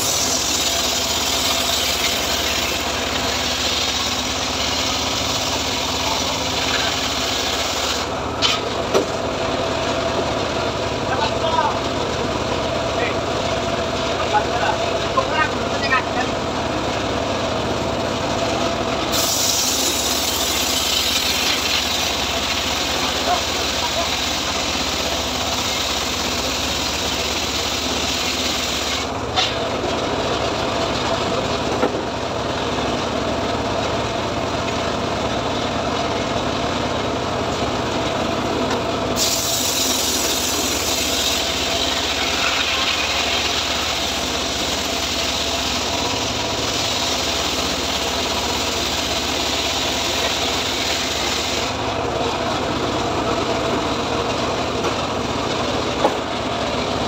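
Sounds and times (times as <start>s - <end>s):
saw blade cutting wood: 0.0s - 8.7s, 19.1s - 29.6s, 39.2s - 51.8s
engine running: 0.0s - 57.0s.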